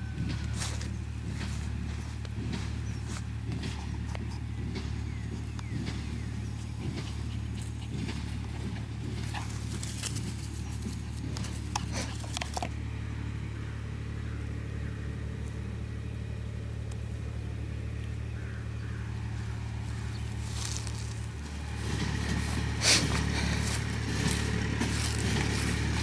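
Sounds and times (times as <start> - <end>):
distant tractor engine drone: 0.0 - 26.0
crackles and rustles: 6.6 - 12.7, 19.9 - 26.0.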